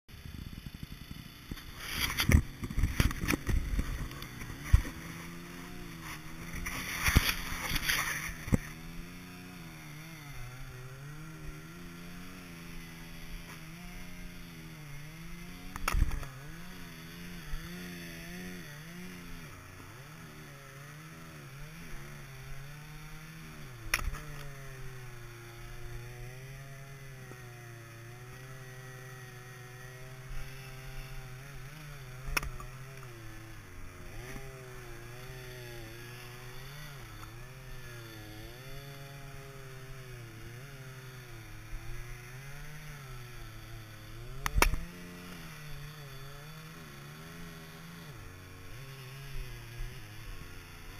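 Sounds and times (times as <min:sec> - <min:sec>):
small gasoline engine running: 0:00.1 - 0:50.9
maul striking firewood: 0:44.5 - 0:44.9.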